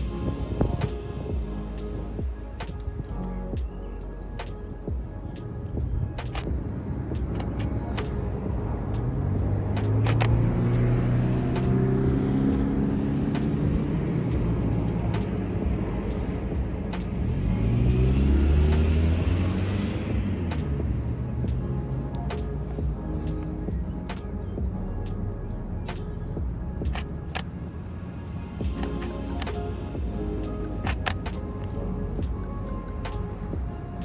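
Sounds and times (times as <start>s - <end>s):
cars driving past: 5.3s - 24.6s
sharp clicks: 6.2s - 6.5s, 7.2s - 8.2s, 9.8s - 10.4s, 28.7s - 29.6s, 30.8s - 31.8s.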